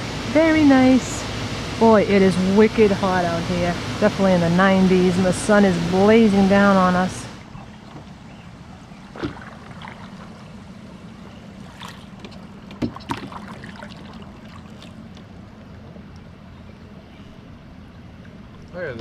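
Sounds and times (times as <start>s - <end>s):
outdoor background hiss: 0.0s - 19.0s
paddle knocks and splashes: 7.4s - 8.3s, 8.9s - 10.5s, 11.2s - 15.8s.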